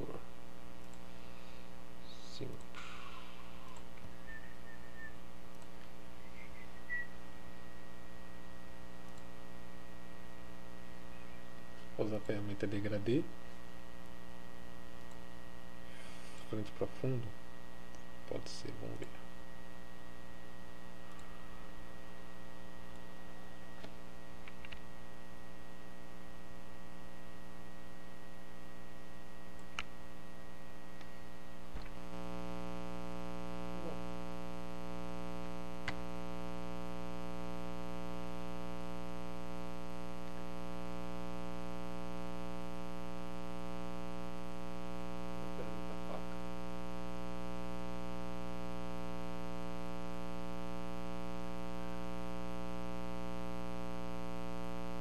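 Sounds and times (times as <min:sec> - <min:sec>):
electrical mains hum: 0:00.0 - 0:55.0
faint clicks: 0:05.5 - 0:06.0.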